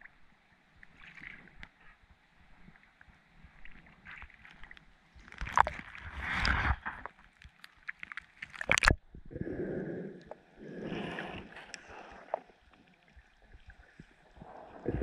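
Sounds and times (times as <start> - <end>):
water lapping and splashing: 2.6 - 15.0
small clicks and pops: 4.5 - 9.0
muffled underwater sound: 8.7 - 15.0.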